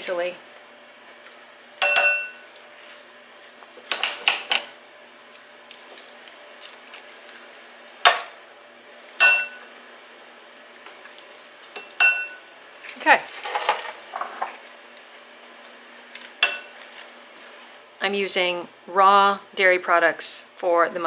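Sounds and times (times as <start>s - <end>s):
spoon clinking on glass bowl: 1.8s - 2.4s, 11.8s - 12.4s.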